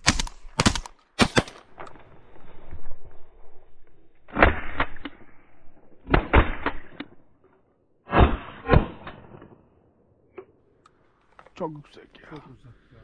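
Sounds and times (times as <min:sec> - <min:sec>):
shotgun shots: 0:00.0 - 0:01.7, 0:04.3 - 0:05.3, 0:06.0 - 0:07.0, 0:08.1 - 0:09.6.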